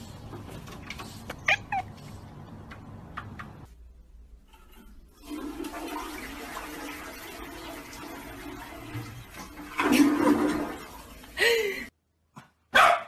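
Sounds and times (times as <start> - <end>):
toilet flushing: 4.5 - 11.9.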